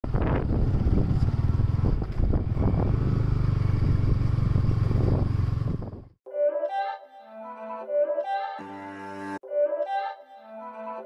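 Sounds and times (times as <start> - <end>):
motorcycle engine thumping: 0.0 - 6.2.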